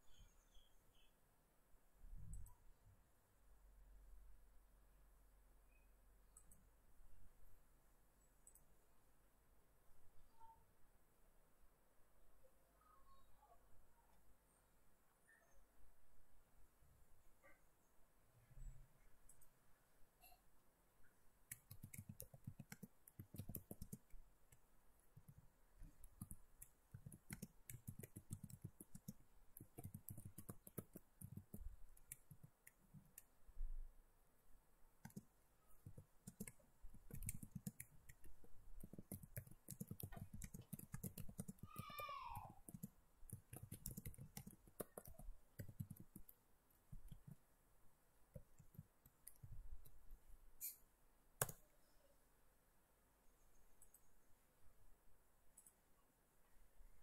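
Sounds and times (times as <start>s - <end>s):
faint clicks: 55.5s - 55.8s.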